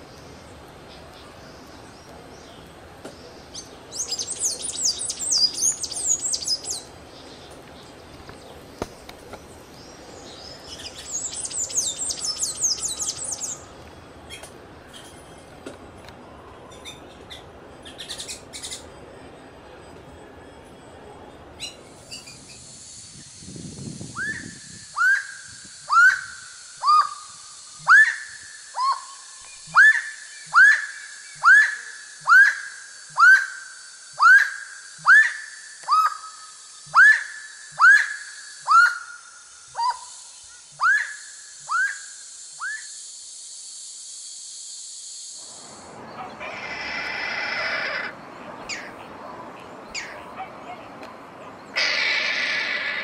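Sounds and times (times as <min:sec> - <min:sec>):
steady high hiss: 0:00.0 - 0:53.0
bird whistled calls: 0:03.9 - 0:06.9, 0:10.5 - 0:13.7, 0:24.1 - 0:39.2, 0:40.8 - 0:43.0.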